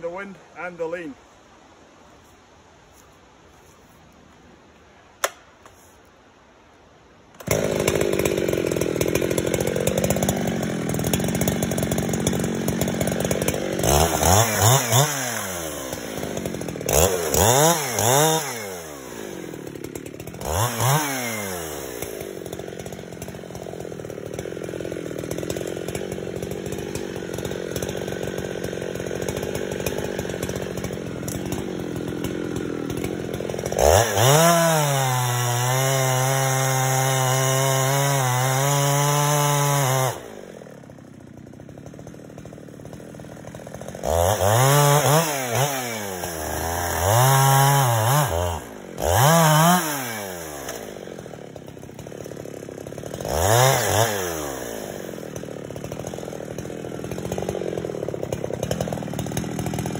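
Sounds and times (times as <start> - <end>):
chainsaw revving and idling: 7.4 - 59.9.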